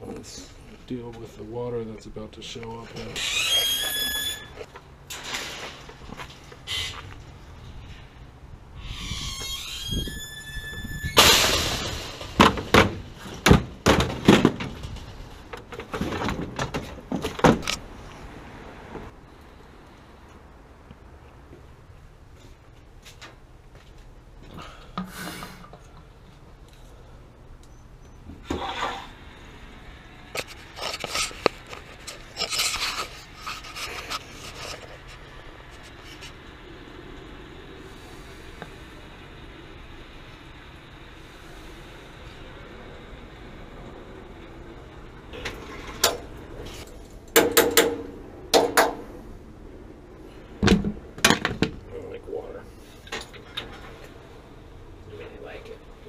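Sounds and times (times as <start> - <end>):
metal ladder scraping: 2.9 - 7.0, 30.4 - 36.3
metal squeal: 3.2 - 4.6, 8.8 - 11.2
faint steady hum: 17.8 - 56.0.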